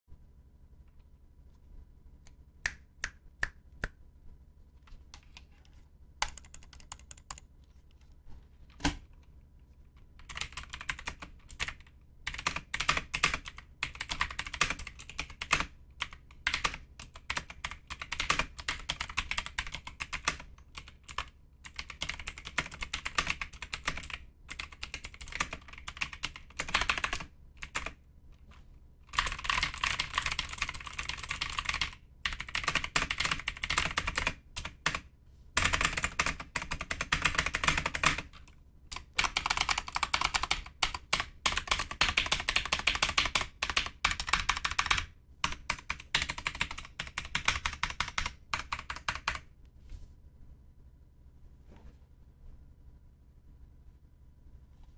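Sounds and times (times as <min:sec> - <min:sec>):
mechanical keyboard typing: 0:06.2 - 0:07.5, 0:10.2 - 0:28.0, 0:29.1 - 0:35.0, 0:35.6 - 0:49.5.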